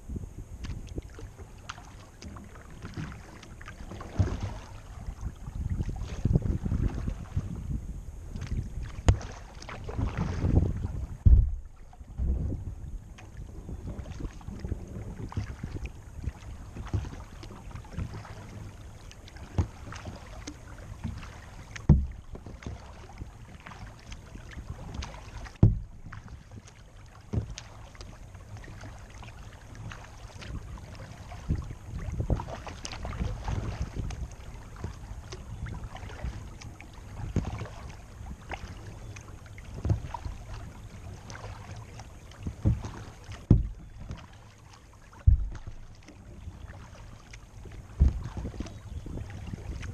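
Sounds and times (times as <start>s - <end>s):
knocks through kayak hull: 0.6s - 7.7s, 8.4s - 38.9s, 39.5s - 49.9s
paddle strokes splashing: 0.6s - 49.9s
low rumble: 4.3s - 17.0s, 25.5s - 26.3s, 42.6s - 44.5s, 45.1s - 49.9s.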